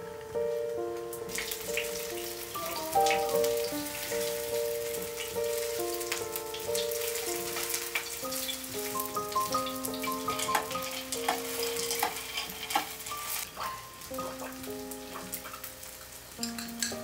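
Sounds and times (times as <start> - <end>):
soft background music: 0.0 - 17.0
pancakes sizzling in oil: 1.3 - 17.0.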